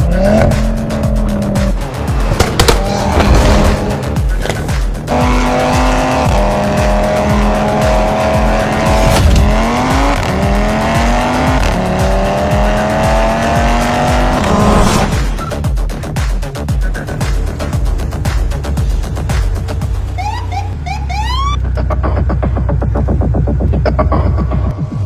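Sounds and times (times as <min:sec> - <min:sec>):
electronic music with steady beat: 0:00.0 - 0:25.0
car engine accelerating hard: 0:05.0 - 0:15.3.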